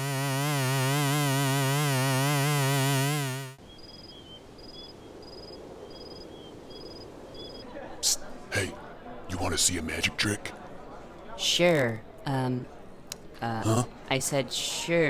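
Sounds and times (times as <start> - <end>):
crickets chirping: 3.6 - 7.9.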